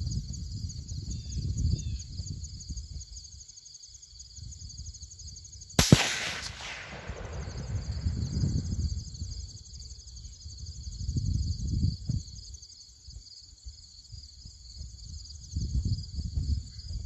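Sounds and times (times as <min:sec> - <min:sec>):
wind rumbling on microphone: 0:00.0 - 0:03.4, 0:04.3 - 0:17.0
insects chirping: 0:00.0 - 0:17.0
rifle shot echoing: 0:05.8 - 0:08.7.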